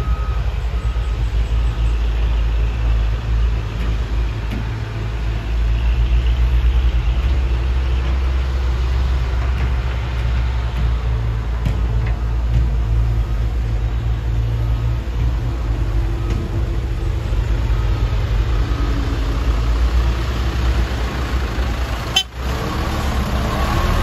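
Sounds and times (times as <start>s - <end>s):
heavy diesel engines rumbling: 0.0s - 24.0s.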